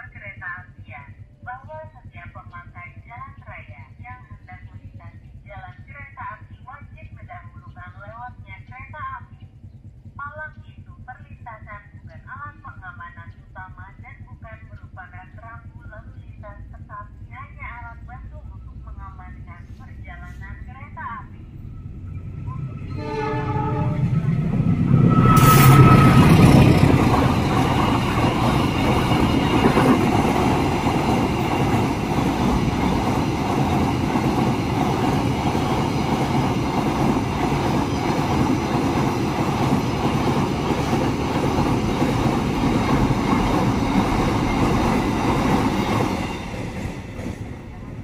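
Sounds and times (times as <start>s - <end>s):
freight wagons rolling past: 22.0s - 48.0s
train horn: 22.8s - 26.9s.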